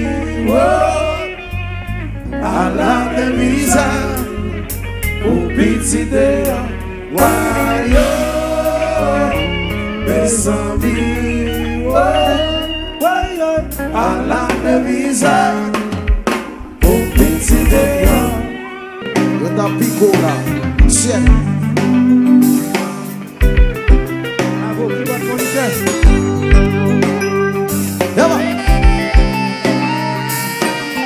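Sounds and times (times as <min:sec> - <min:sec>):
live band playing: 0:00.0 - 0:31.0
person singing lead: 0:05.2 - 0:16.0, 0:16.8 - 0:19.2.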